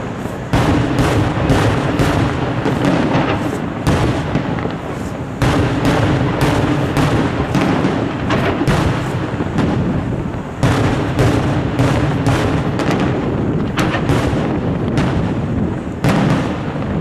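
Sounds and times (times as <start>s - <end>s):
firework shells bursting: 0.0s - 17.0s.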